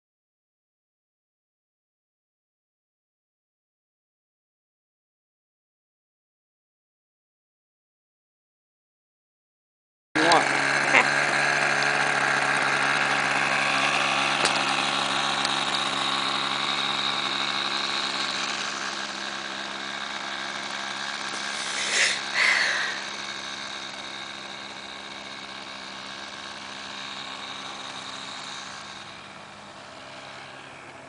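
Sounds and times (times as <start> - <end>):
model airplane engine running: 10.2 - 31.0.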